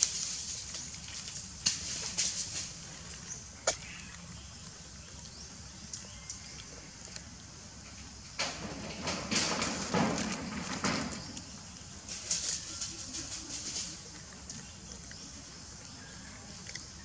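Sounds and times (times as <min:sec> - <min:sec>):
dry plant husk crunching: 0:00.0 - 0:06.8.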